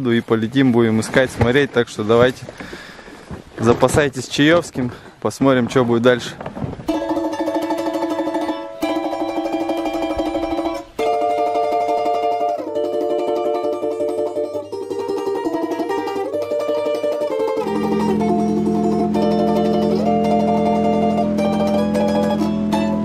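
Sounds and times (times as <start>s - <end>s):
low sustained note: 6.9s - 23.0s
plucked string music: 6.9s - 23.0s.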